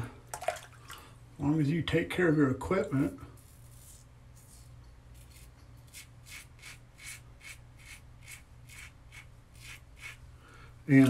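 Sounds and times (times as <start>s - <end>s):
razor scraping stubble: 3.4s - 10.2s.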